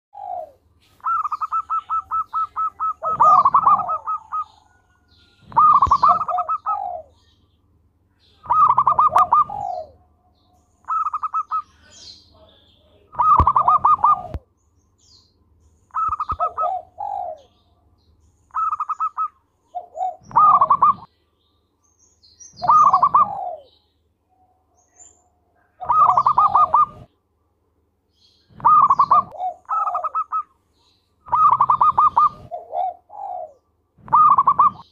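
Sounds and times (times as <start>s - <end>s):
dove singing: 0.1s - 27.2s, 28.2s - 34.9s.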